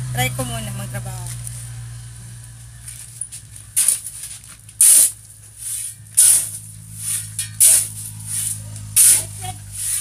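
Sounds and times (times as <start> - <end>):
shovel scraping concrete floor: 3.0 - 10.0.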